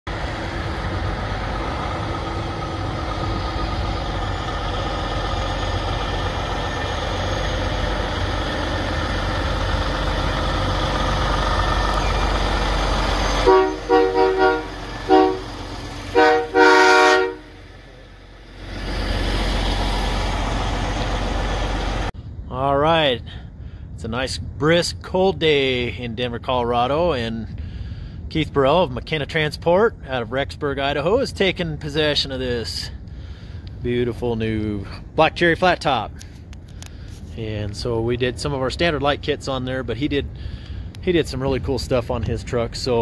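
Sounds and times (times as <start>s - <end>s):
diesel truck engine running: 0.1s - 22.4s, 31.8s - 43.0s
air horn blasts: 13.2s - 17.8s.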